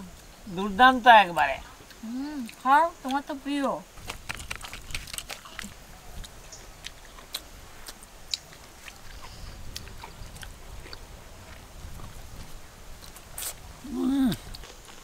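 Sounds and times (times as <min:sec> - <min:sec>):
chewing mouth clicks: 0:04.0 - 0:12.1.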